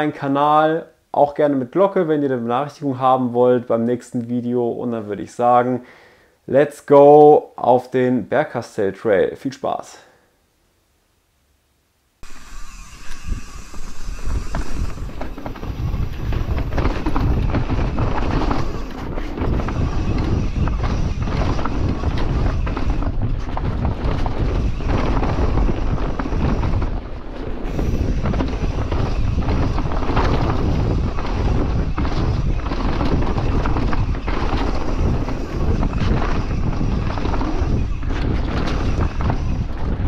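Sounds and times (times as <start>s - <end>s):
bike rattling and knocking: 12.2s - 40.0s
bike tyres on dirt: 12.2s - 40.0s
wind buffeting microphone: 12.2s - 40.0s.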